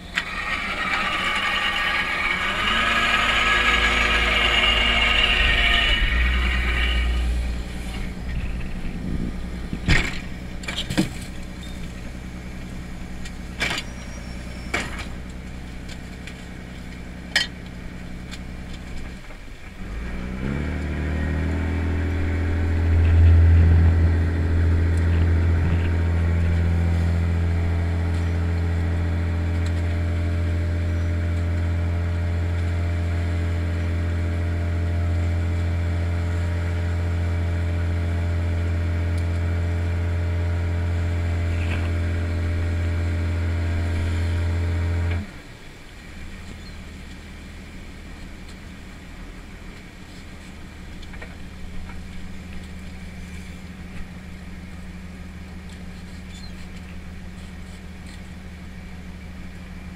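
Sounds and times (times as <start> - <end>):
hydraulic pot hauler running: 0.0 - 19.6, 20.8 - 45.4
boat engine drone: 0.0 - 59.9.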